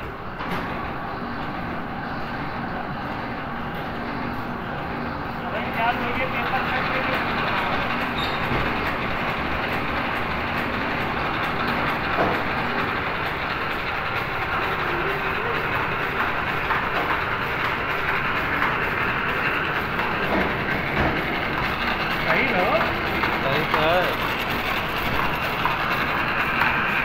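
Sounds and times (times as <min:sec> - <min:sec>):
wrapping machine clatter: 0:05.5 - 0:27.0.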